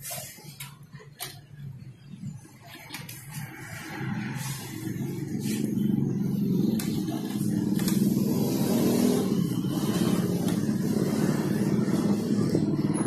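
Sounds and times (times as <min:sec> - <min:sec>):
engine running: 0:03.0 - 0:13.0.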